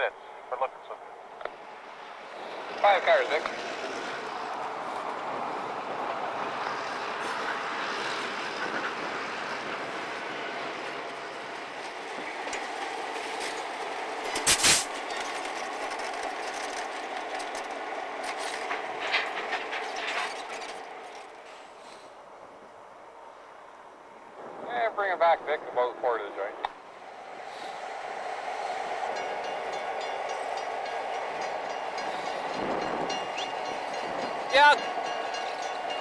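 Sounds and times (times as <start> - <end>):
diesel locomotive engine drone: 0.0 - 36.0
wheels clacking over rail joints: 1.4 - 21.8, 27.9 - 36.0.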